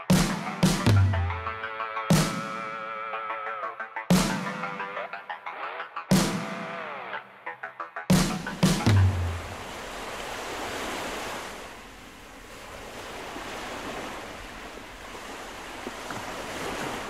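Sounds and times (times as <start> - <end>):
electronic music: 0.0 - 9.5
sea waves: 0.0 - 17.0.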